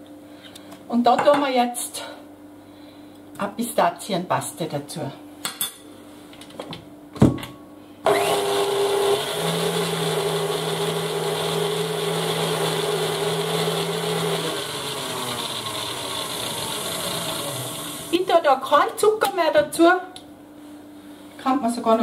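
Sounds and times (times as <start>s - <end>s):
stand mixer whisking: 8.1s - 18.2s.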